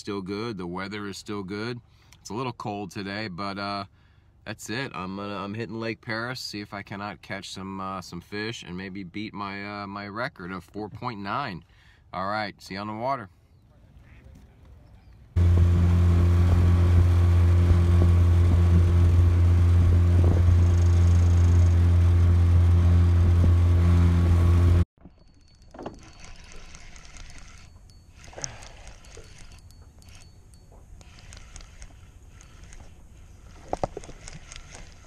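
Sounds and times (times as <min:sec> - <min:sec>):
outboard motor humming: 0:15.3 - 0:24.9, 0:25.7 - 0:35.0.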